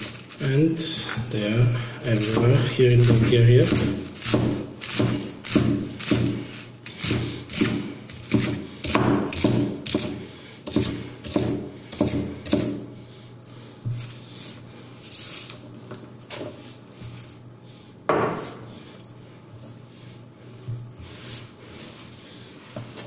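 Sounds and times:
cleaver chopping on wooden board: 2.2 - 6.4, 7.1 - 12.8.

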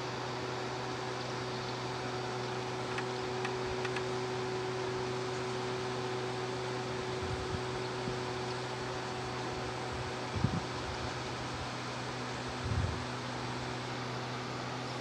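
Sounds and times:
machine hum with hiss: 0.0 - 15.0.

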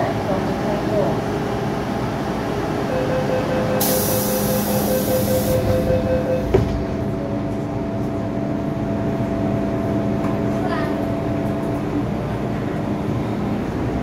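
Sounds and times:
train hum: 0.0 - 14.0
pulsing door warning tone: 2.8 - 7.1
train door thud: 6.4 - 7.0.

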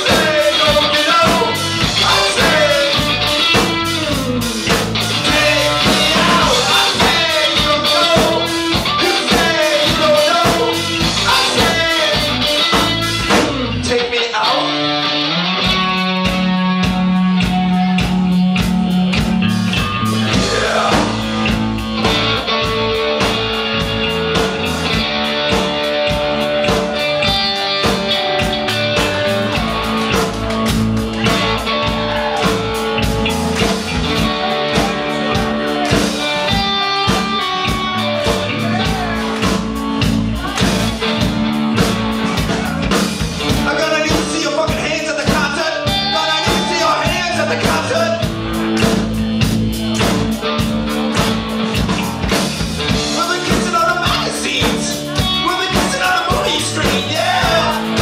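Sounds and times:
person singing: 0.0 - 4.1, 5.0 - 14.9, 20.0 - 22.3, 42.2 - 48.3, 52.9 - 58.0
drum kit beat: 0.0 - 14.0, 15.4 - 58.0
electric guitars: 0.0 - 58.0.

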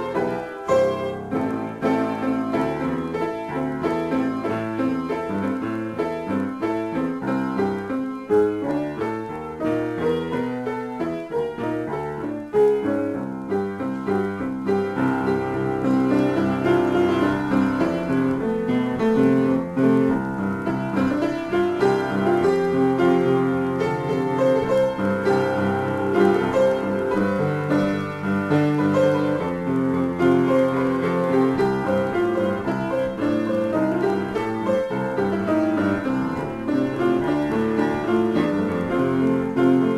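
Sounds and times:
solo piano improvisation: 0.0 - 39.9.

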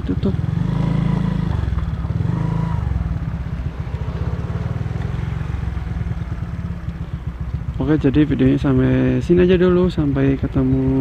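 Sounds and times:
scooter engine idling: 0.0 - 11.0.

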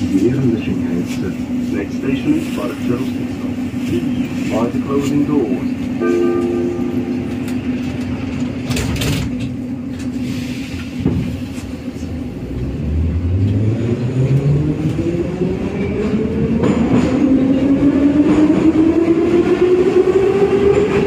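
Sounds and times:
metro car doors closing: 6.0 - 11.9.

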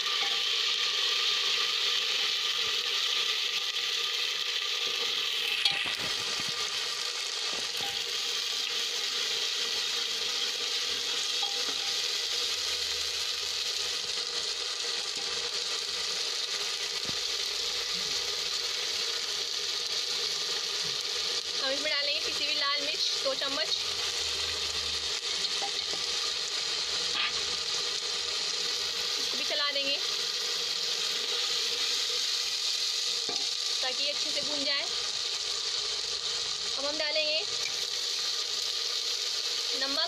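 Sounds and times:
paste sizzling in hot oil: 0.0 - 40.0.

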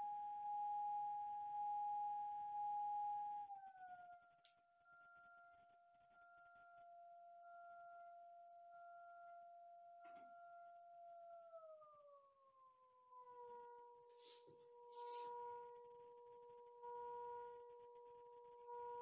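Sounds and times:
pure tone from speaker: 0.0 - 12.2, 13.1 - 19.0.

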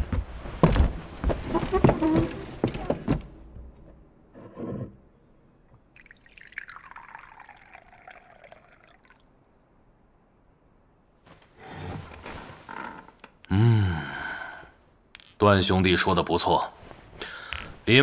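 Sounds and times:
liquid pouring into a cup: 5.8 - 9.3.

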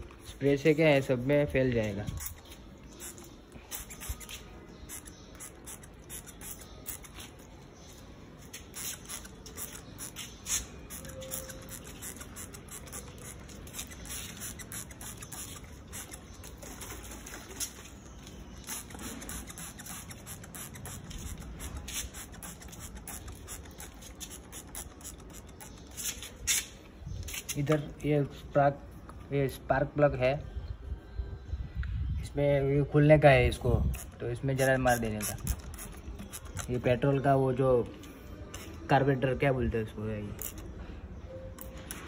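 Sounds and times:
spray bottle spritzing: 2.2 - 7.4, 8.4 - 16.6, 18.5 - 27.6, 33.9 - 36.7.

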